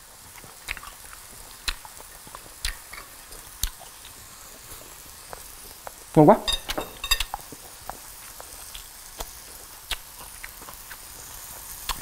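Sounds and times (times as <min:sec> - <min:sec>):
meat sizzling on grill: 0:00.0 - 0:12.0
knife and fork clinking on plate: 0:06.4 - 0:07.4.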